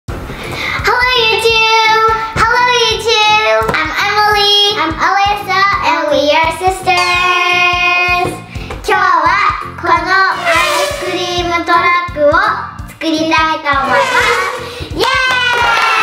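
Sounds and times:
backing music with steady beat: 0:01.3 - 0:15.0
children singing: 0:10.3 - 0:11.5.

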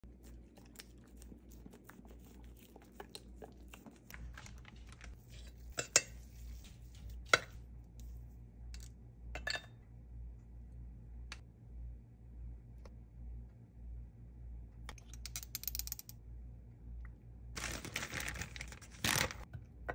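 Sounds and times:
dog licking a spoon: 0:00.2 - 0:04.2
utensils clinking on ceramic bowl: 0:05.4 - 0:06.2, 0:09.4 - 0:09.8.

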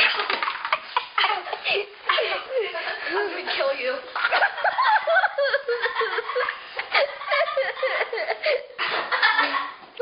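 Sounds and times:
children laughing: 0:00.0 - 0:03.5, 0:04.1 - 0:10.0.

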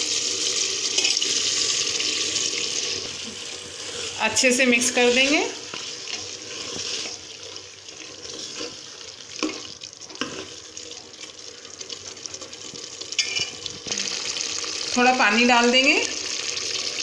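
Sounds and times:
food sizzling in a pot: 0:00.0 - 0:17.0
spoon clinking against pot: 0:13.2 - 0:13.6.

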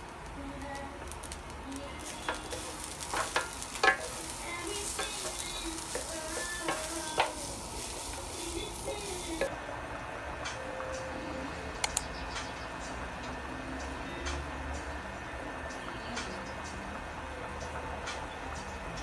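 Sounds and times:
rice sizzling in a pan: 0:00.0 - 0:19.0
wooden spatulas scraping a pan: 0:02.0 - 0:09.5
wood knocking on a pan: 0:02.2 - 0:09.5.

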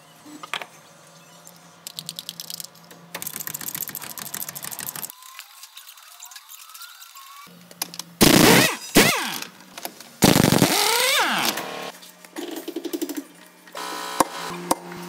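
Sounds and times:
pneumatic impact wrench: 0:08.2 - 0:09.5, 0:10.2 - 0:11.9
steady hum: 0:10.2 - 0:11.9.

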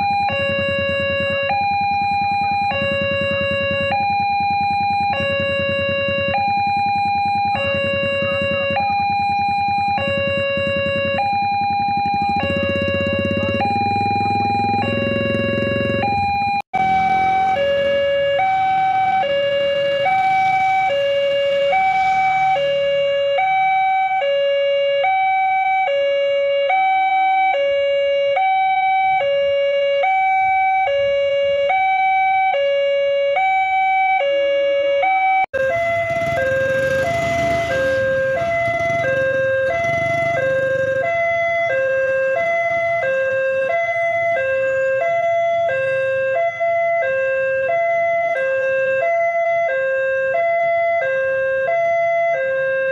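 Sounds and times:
traffic noise: 0:00.0 - 0:25.2, 0:35.5 - 0:52.9
level crossing two-tone alarm: 0:00.0 - 0:52.9.

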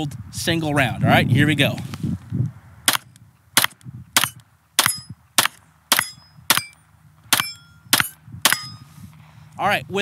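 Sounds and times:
pistol shots: 0:02.9 - 0:08.8
thin ringing: 0:04.8 - 0:05.2, 0:06.0 - 0:06.8, 0:07.4 - 0:09.0.

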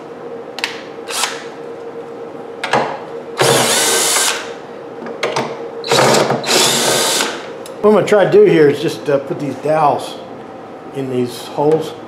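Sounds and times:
cordless drill bursts: 0:03.4 - 0:04.5, 0:05.8 - 0:07.4.

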